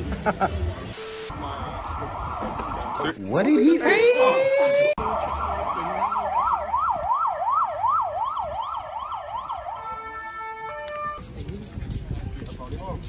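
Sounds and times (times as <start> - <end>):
emergency siren yelping: 1.3 - 11.2.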